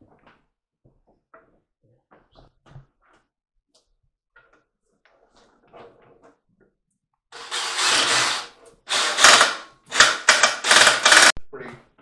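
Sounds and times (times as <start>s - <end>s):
rapid mechanical rattling: 7.4s - 11.3s.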